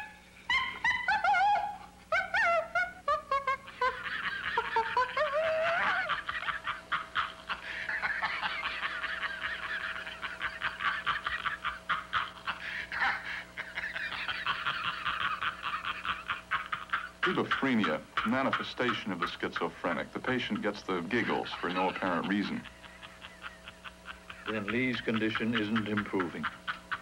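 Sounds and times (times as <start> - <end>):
man laughing hysterically: 0.5 - 27.0.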